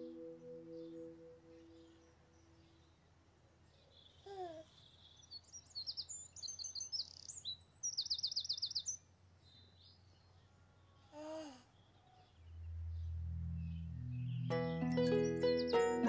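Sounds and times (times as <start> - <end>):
bird trill: 0.0 - 3.0, 4.8 - 9.0, 12.4 - 16.0
baby cooing: 4.2 - 4.7, 11.2 - 11.6
songbirds chirping and whistling: 4.8 - 10.5, 11.8 - 16.0.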